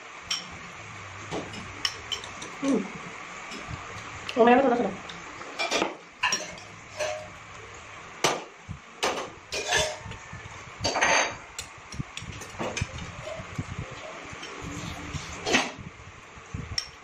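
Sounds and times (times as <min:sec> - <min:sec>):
cutlery scraping plates: 0:01.2 - 0:02.9, 0:05.5 - 0:07.4, 0:09.0 - 0:10.2, 0:10.8 - 0:11.5, 0:12.4 - 0:15.8.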